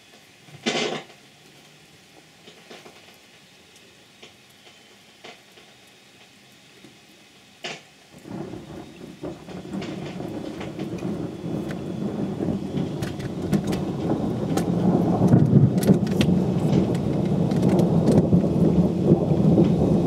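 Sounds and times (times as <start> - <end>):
steady rain hiss: 0.0 - 20.0
raindrops ticking: 0.2 - 20.0
thunder rumbling: 8.1 - 20.0.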